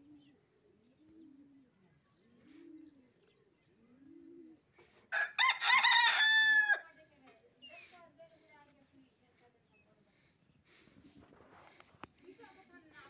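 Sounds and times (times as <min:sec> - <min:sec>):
faint bird chirps: 0:00.0 - 0:05.1, 0:06.9 - 0:13.0
rooster crowing: 0:05.1 - 0:06.9.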